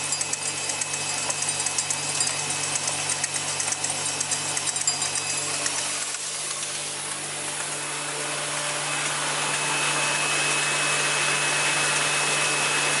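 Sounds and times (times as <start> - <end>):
assembly machine running: 0.0 - 13.0.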